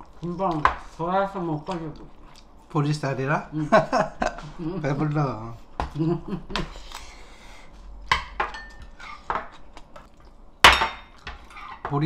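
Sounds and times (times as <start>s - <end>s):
cutlery clinking against dishes: 8.1s - 9.6s, 10.7s - 11.9s.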